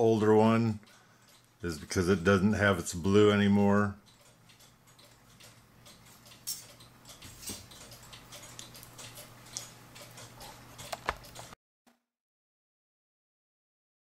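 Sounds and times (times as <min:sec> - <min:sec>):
metallic clicks of steel springs: 0:04.1 - 0:11.6.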